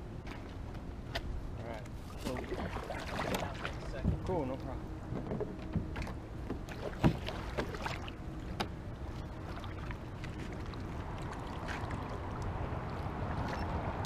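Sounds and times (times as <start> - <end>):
paddle strokes through water: 2.0 - 4.3, 5.4 - 14.0
wind rumble on microphone: 5.0 - 14.0.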